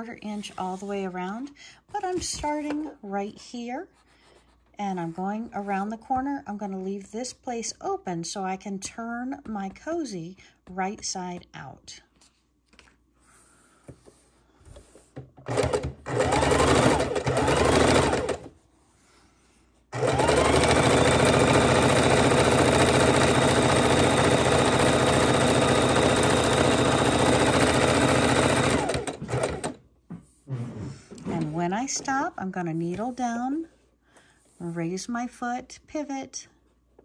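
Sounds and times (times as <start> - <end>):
sewing machine stitching fabric: 15.4 - 18.5, 19.9 - 29.8.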